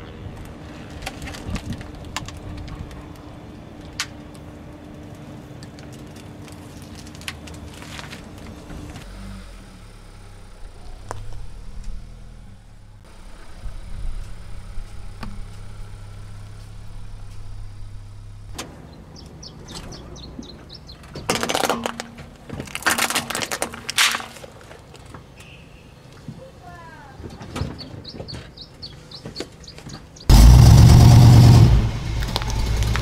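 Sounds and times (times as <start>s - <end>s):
toy crunching under a tyre: 0.0s - 3.2s, 5.0s - 9.1s, 21.1s - 25.2s
car engine running: 7.7s - 21.2s, 30.2s - 33.0s.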